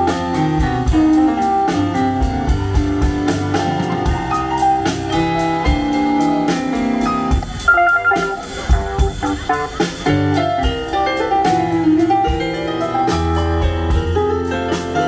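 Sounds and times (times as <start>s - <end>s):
live band playing upbeat tune: 0.0s - 15.0s
cymbal and drum strokes: 4.3s - 13.2s.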